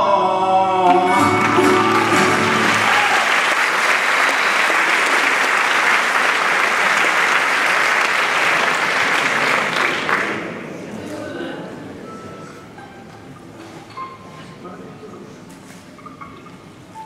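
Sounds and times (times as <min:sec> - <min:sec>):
audience applauding: 0:00.9 - 0:10.6.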